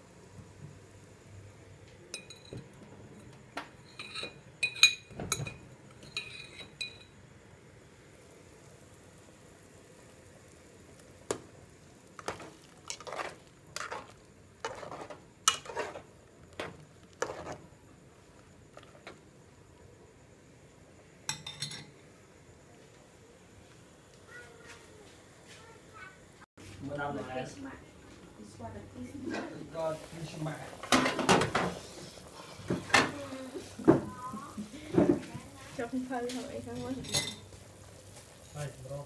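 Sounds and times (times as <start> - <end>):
metal ladle scraping aluminium pot: 12.4 - 16.1.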